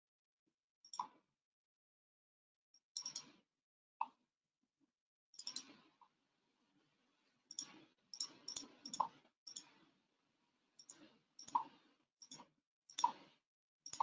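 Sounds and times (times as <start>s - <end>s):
computer mouse clicking: 0.8s - 1.2s, 3.0s - 3.4s, 5.4s - 5.9s, 7.5s - 9.8s, 10.8s - 14.0s.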